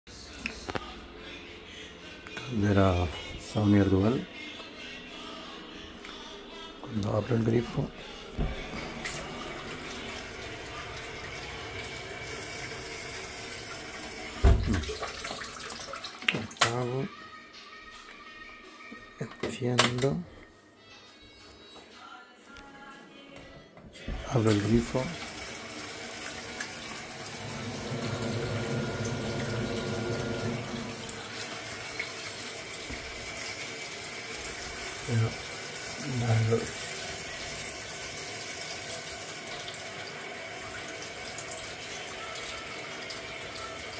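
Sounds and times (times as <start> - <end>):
tap water running into sink: 8.4 - 16.8, 24.1 - 43.9
tap running into metal sink: 14.3 - 15.2.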